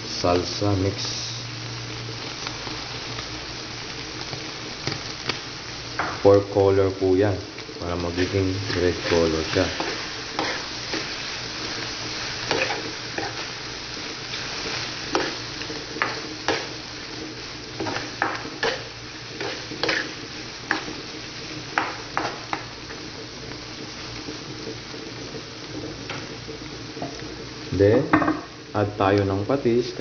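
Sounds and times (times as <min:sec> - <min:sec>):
food sizzling in frying pan: 0:00.0 - 0:30.0
metal spatula scraping pan: 0:18.6 - 0:20.8.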